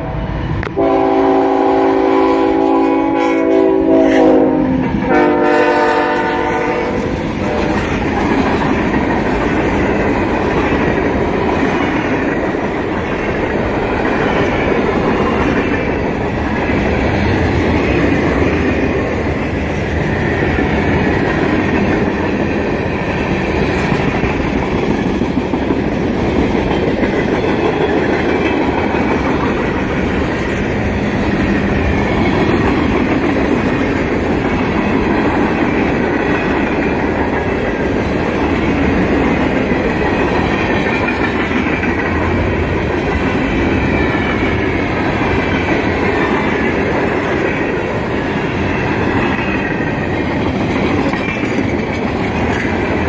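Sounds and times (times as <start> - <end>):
locomotive air horn: 0.0 - 7.8
train cars rolling past: 0.0 - 53.0.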